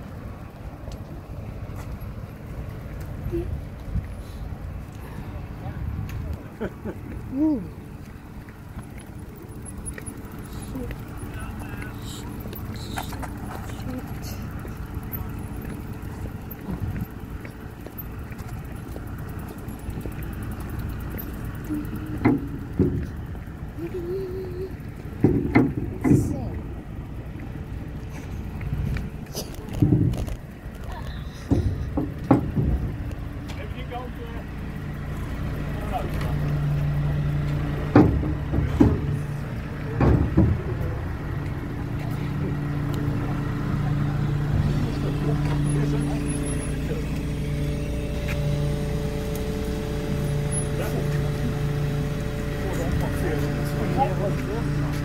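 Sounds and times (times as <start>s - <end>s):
ferry engine idling: 0.0s - 55.0s
bicycles clanking over steel ramp: 8.6s - 23.8s, 24.7s - 28.5s, 29.6s - 34.2s, 37.6s - 43.9s
knocks and thumps: 22.2s - 23.2s, 25.2s - 26.4s, 29.7s - 30.4s, 31.5s - 33.0s, 37.9s - 39.2s, 40.0s - 40.8s.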